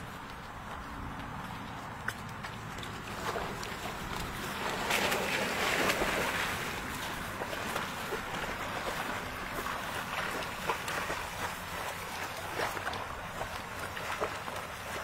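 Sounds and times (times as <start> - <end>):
water splashing from swimming dogs: 0.0 - 15.0.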